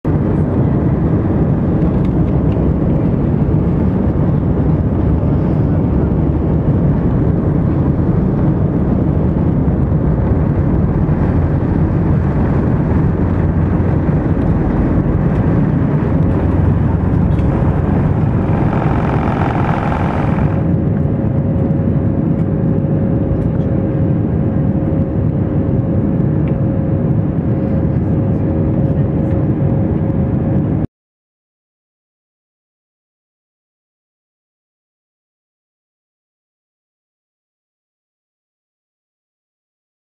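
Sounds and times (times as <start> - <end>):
jet engines roaring: 0.1 - 30.5
steady hum: 10.3 - 21.2
high rushing noise: 15.9 - 20.8.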